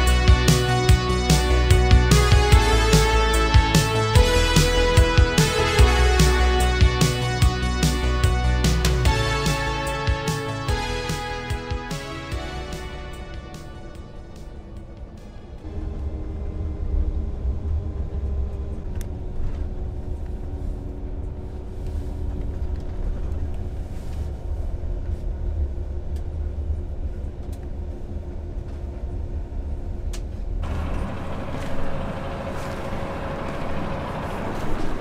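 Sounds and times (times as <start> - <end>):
bus engine and road drone: 0.0 - 35.0.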